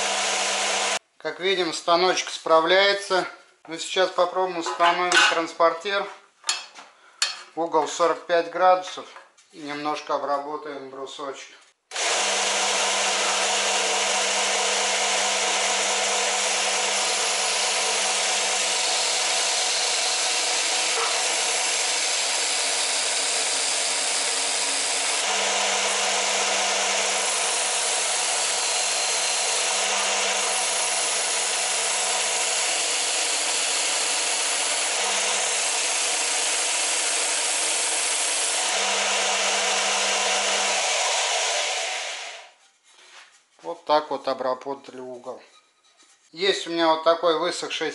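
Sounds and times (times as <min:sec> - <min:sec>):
disc sander running: 0:00.0 - 0:01.0, 0:11.9 - 0:42.5.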